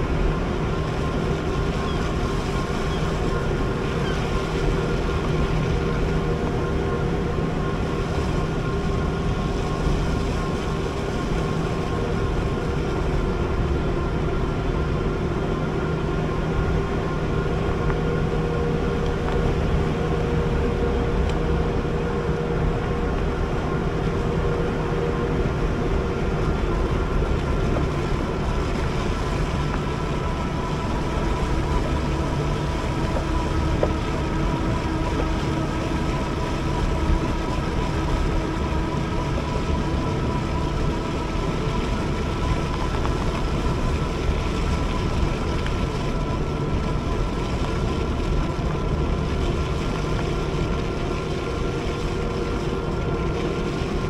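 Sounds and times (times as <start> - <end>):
wind and tyre noise: 0.0 - 54.0.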